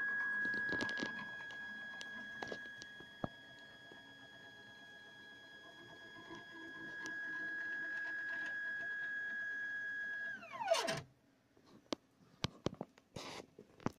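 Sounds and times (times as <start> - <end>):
stepper motor whine: 0.0 - 11.0.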